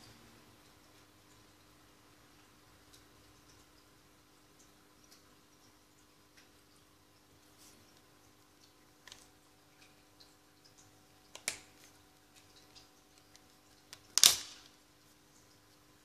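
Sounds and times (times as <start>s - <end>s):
plastic cover snapping off: 14.0s - 14.7s.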